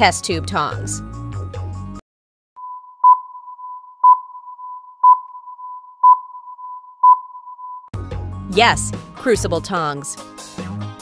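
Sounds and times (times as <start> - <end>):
countdown timer beeps: 2.6 - 7.9.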